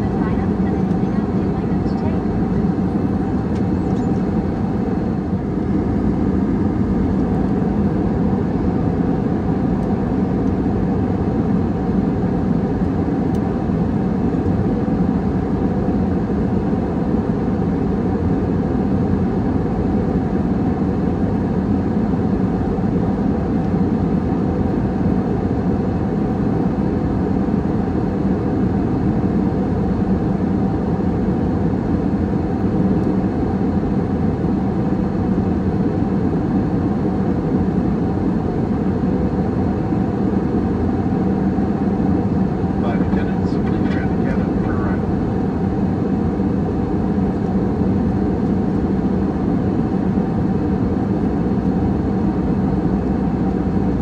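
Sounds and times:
jet engine and airflow drone: 0.0 - 54.0
faint even hum: 42.6 - 45.8.

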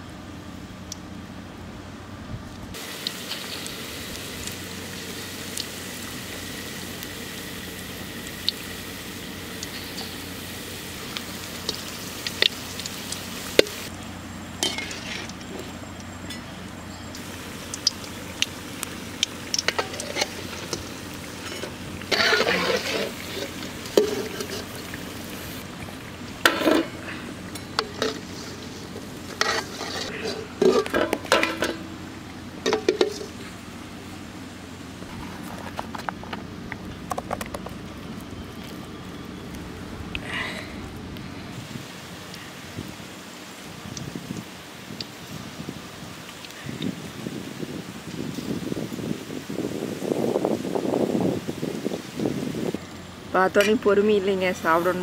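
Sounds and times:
deep-frying sizzle with pops: 0.0 - 1.1, 2.6 - 55.0
metal skimmer scraping pan: 14.6 - 17.1, 19.5 - 25.6, 26.4 - 33.5.

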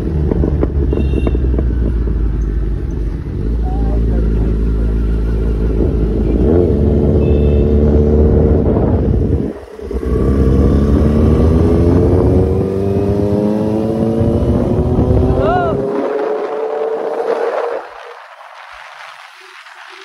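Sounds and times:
motorcycle engine accelerating: 0.0 - 18.4.

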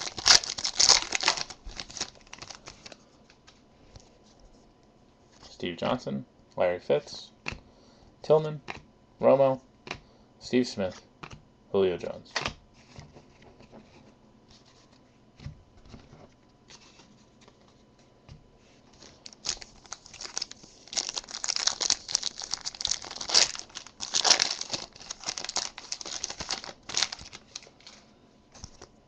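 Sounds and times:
foil wrapper tearing and crinkling: 0.0 - 3.0, 19.0 - 27.9.

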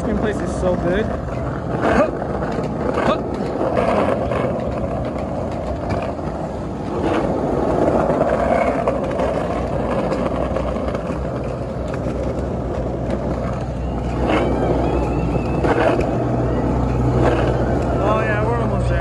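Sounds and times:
car engines humming: 0.0 - 19.0
roller-skate wheels on pavement: 0.0 - 19.0.

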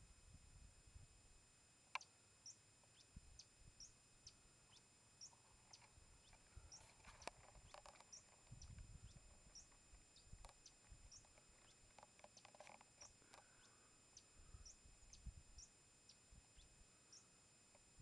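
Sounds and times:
faint high chirps: 1.9 - 18.0
soft low rumbles: 2.9 - 12.4.

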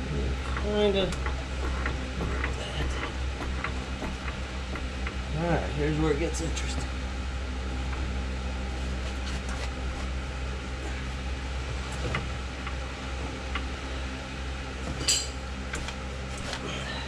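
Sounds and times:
steady mechanical hum: 0.0 - 17.0
metal clank: 14.9 - 15.4.

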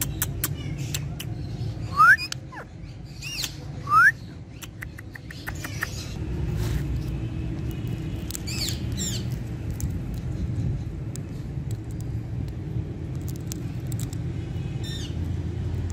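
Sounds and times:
parakeet whistled chirps: 1.8 - 4.2.

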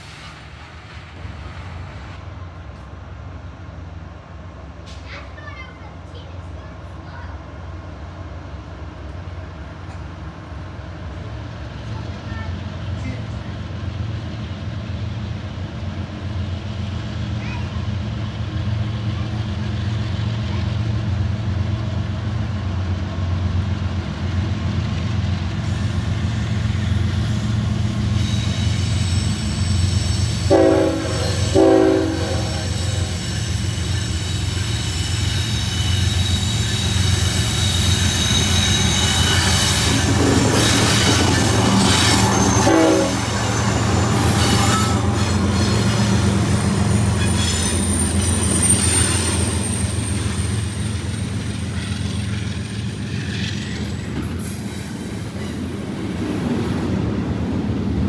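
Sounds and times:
wheels squealing on rail: 0.0 - 2.2, 25.4 - 58.0
diesel locomotive engine drone: 0.0 - 58.0
train horn blasts: 30.4 - 33.1, 42.5 - 43.5.

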